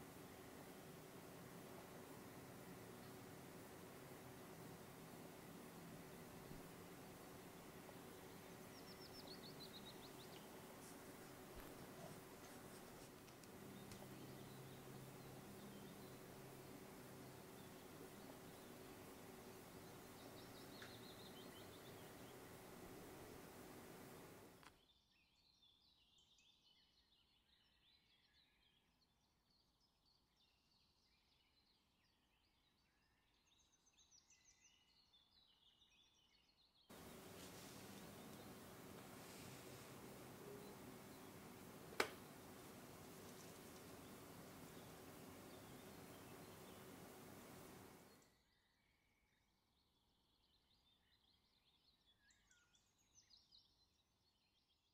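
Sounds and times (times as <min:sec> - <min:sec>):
faint rapid bird chirping: 0:00.0 - 0:24.6, 0:36.9 - 0:48.4
steady background hiss: 0:00.0 - 0:24.7, 0:36.9 - 0:48.2.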